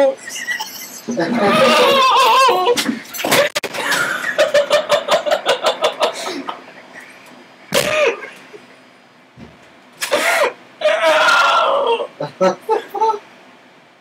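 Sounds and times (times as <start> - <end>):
person laughing rhythmically: 3.6 - 7.3.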